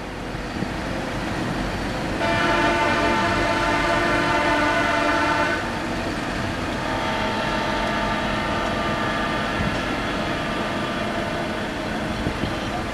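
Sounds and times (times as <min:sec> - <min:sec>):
road noise from moving car: 0:00.0 - 0:12.9
horns holding long notes: 0:02.2 - 0:05.7, 0:06.8 - 0:11.4.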